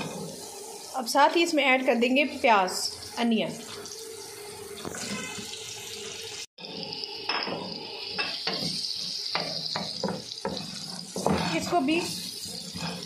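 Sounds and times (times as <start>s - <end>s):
onions sizzling in hot oil: 0.0s - 13.0s
wooden spatula scraping pan: 4.8s - 5.4s, 9.9s - 13.0s.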